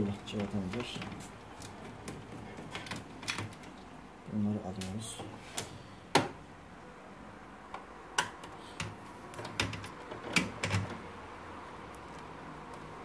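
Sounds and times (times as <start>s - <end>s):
clicks and knocks on plastic parts: 7.8s - 11.0s.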